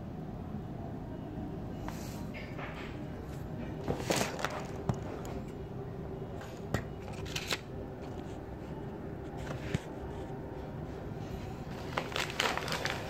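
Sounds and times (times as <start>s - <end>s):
steady low hum: 0.0s - 13.0s
packaging clicks and rustles: 3.6s - 5.4s, 6.5s - 8.3s, 11.4s - 13.0s.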